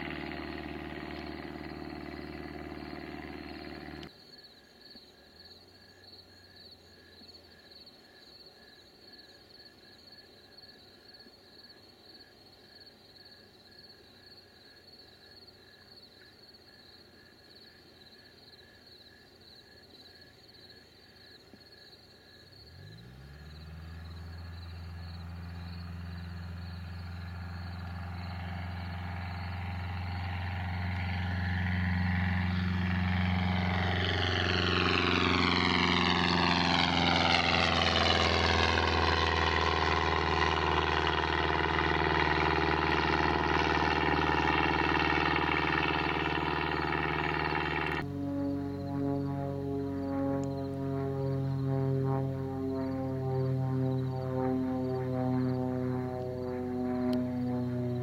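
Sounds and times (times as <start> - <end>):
propeller plane engine: 0.0 - 4.1, 22.4 - 58.0
crickets chirping: 0.0 - 37.6, 38.2 - 58.0.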